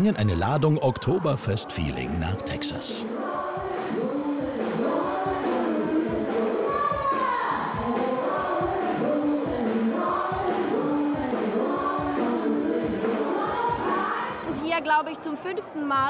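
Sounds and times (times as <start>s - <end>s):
women singing together: 2.9s - 16.0s.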